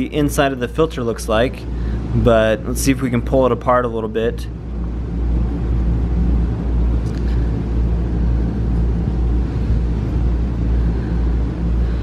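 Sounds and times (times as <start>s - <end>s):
motor droning: 4.4s - 12.0s.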